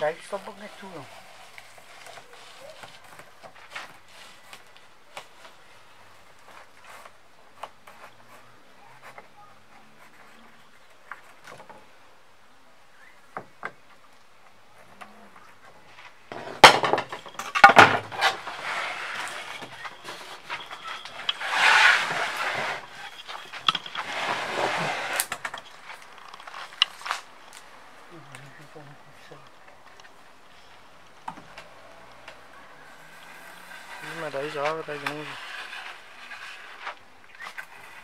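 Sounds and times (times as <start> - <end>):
wood clattering on wood: 14.9 - 27.3.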